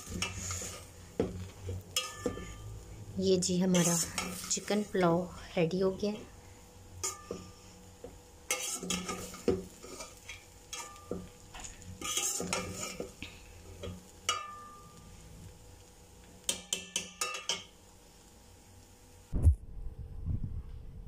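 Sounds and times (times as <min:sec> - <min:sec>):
metal spoon scraping a pot: 0:00.0 - 0:02.8, 0:03.6 - 0:04.9, 0:08.5 - 0:13.2.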